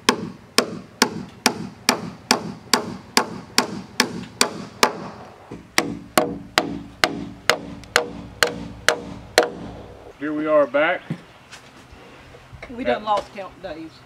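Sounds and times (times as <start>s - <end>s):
hammer driving nails through metal: 0.0s - 9.8s.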